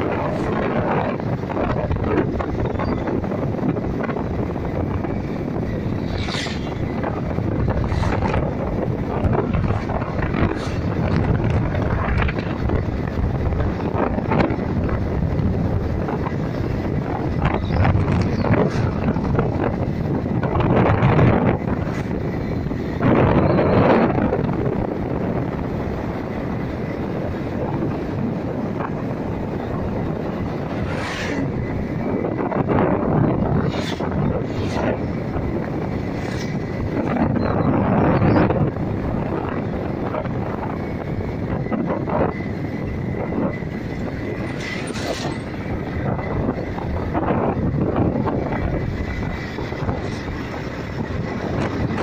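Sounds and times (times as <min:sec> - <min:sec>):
wind buffeting microphone: 0:00.0 - 0:52.0.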